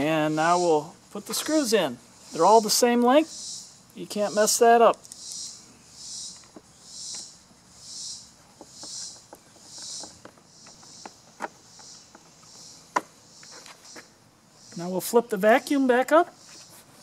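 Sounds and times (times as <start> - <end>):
insect chirping in hissing pulses: 0.1 - 15.0.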